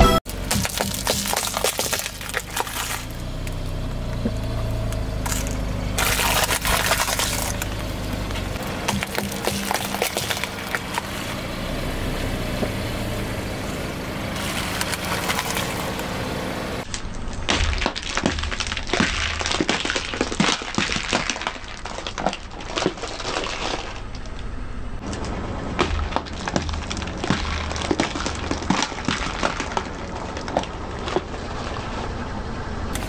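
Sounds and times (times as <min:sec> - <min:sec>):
low steady car sound: 0:00.0 - 0:33.0
plastic eggs cracking and crunching: 0:00.3 - 0:03.6, 0:05.2 - 0:11.1, 0:16.8 - 0:31.8.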